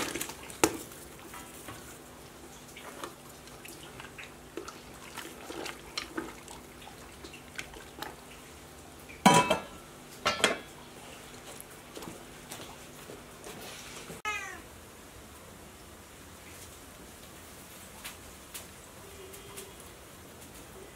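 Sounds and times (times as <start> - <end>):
metal lid clanking: 9.2 - 10.7.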